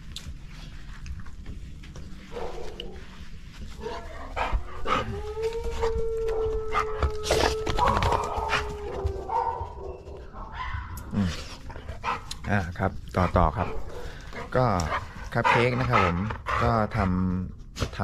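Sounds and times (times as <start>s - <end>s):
dog howling: 3.9s - 11.1s.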